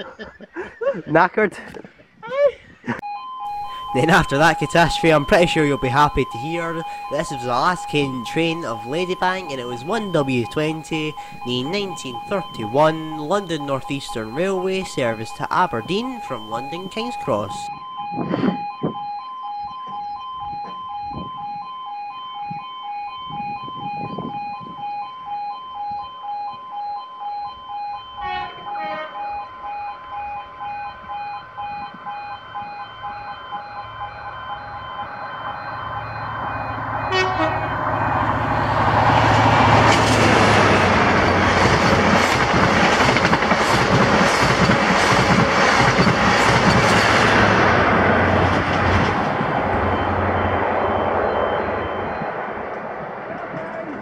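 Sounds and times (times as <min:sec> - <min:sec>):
level crossing alarm: 0:02.9 - 0:53.0
train horn: 0:28.2 - 0:29.4, 0:37.0 - 0:38.2
train passing at speed: 0:35.4 - 0:54.0.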